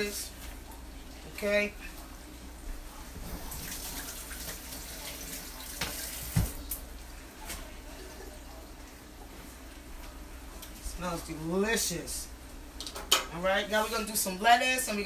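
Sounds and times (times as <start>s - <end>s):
tap water running into sink: 3.5s - 6.8s.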